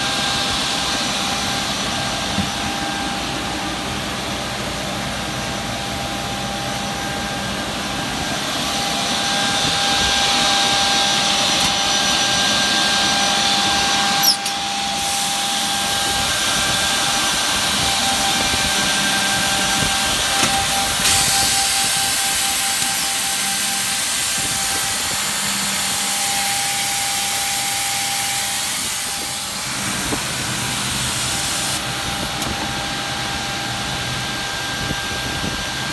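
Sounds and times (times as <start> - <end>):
machine motor hum and whine: 0.0 - 35.9
cutting hiss: 19.7 - 32.5.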